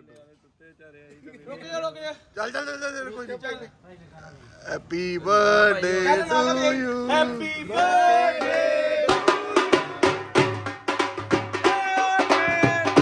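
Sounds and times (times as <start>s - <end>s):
quick steady drum beat: 8.4s - 13.0s.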